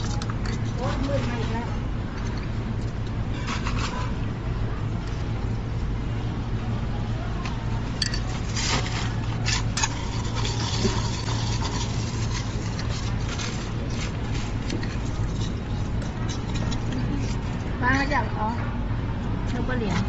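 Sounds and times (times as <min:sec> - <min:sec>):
scoop scraping crushed ice: 0:08.4 - 0:17.4.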